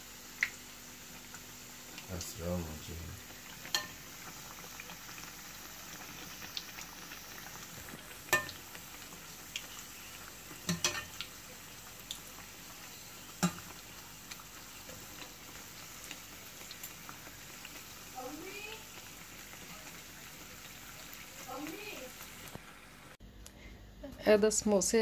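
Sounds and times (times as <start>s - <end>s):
food deep-frying in oil: 0.0s - 23.2s
metal skimmer knocking on pan: 10.7s - 11.1s.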